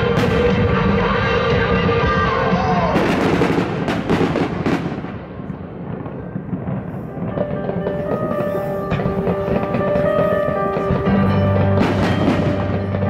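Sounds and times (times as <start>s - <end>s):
loud music: 0.0s - 3.5s, 7.4s - 13.0s
fireworks bursting and crackling: 0.0s - 13.0s.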